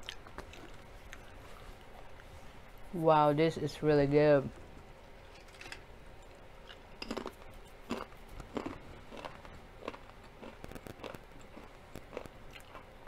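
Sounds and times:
chewing crunchy chip: 0.0 - 1.4, 6.6 - 13.0.

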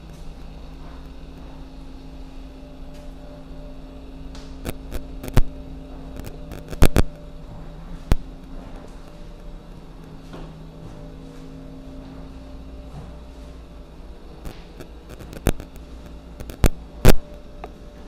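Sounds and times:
steady low hum: 0.0 - 18.0
footsteps on hardwood floor: 10.1 - 13.6.

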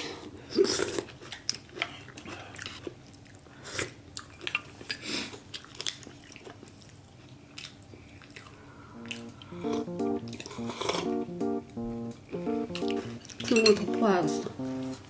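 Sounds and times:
people chewing and biting: 0.6 - 8.5.

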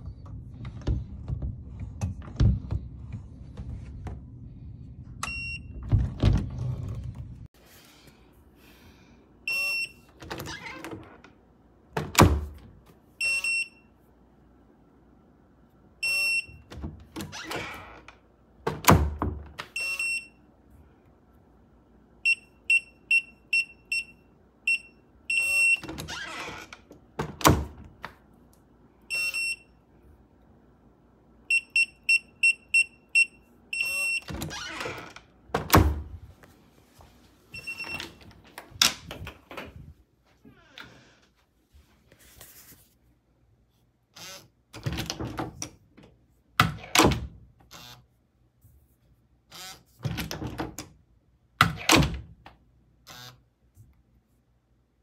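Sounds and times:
keypad lock beeps: 19.8 - 20.3, 29.1 - 29.7, 31.5 - 34.3, 37.6 - 38.2.

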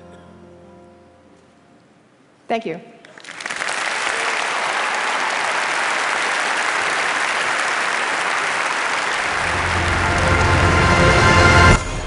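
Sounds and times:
audience applauding: 3.1 - 11.8.

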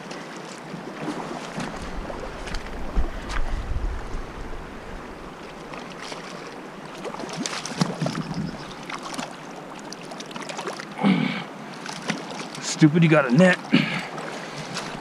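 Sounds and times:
river running over rocks: 0.0 - 15.0
wind rumbling on microphone: 1.5 - 8.8.

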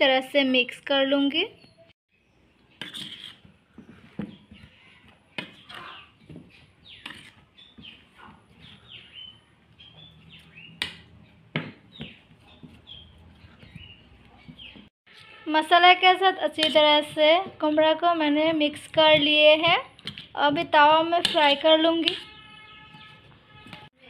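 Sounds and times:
birds chirping: 3.6 - 14.9, 22.3 - 23.6.

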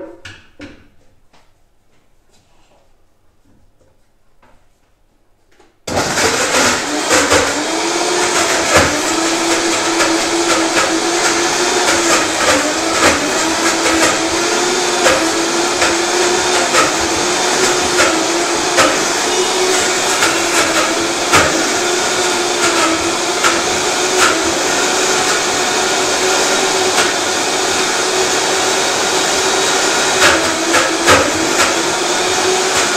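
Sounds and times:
blender running at high speed: 5.9 - 32.9
knocks in blender: 6.9 - 21.9, 30.2 - 31.8.

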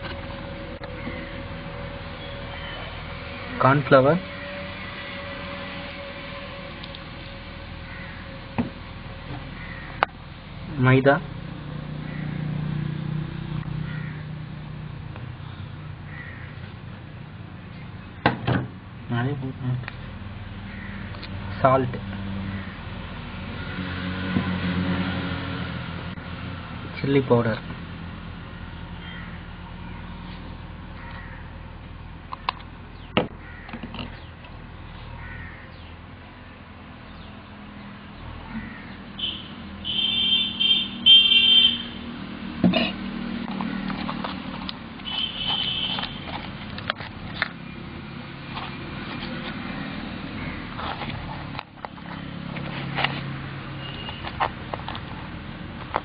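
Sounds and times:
crows cawing: 0.8 - 1.6, 7.8 - 8.5, 9.2 - 10.1, 11.9 - 12.8, 13.8 - 14.4, 15.4 - 16.8, 20.6 - 21.3, 22.4 - 24.0, 28.6 - 30.1, 30.9 - 31.7, 33.3 - 34.3, 35.0 - 35.9, 37.8 - 39.3, 43.5 - 44.3, 49.7 - 51.0.

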